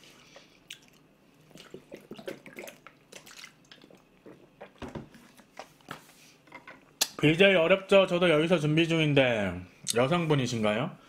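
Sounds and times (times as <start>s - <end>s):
person gulping and swallowing: 0.6s - 5.1s.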